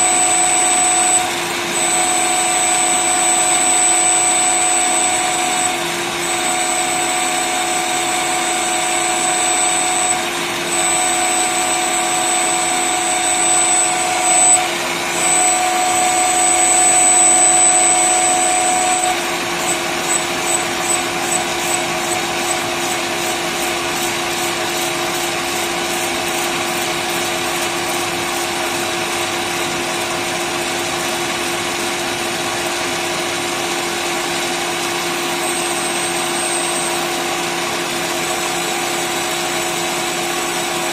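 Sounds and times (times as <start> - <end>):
lathe short pulses: 0.0 - 31.0
lathe cutting metal whine: 0.0 - 40.9.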